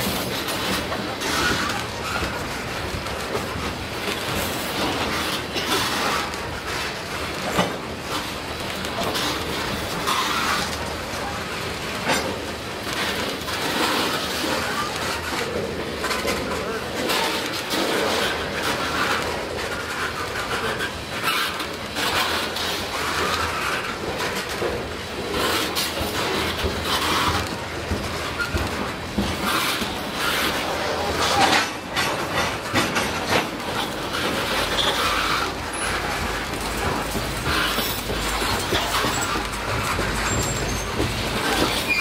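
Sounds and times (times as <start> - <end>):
rumble of rolling train wheels: 0.0 - 42.0
wheels clacking over rail joints: 0.0 - 42.0.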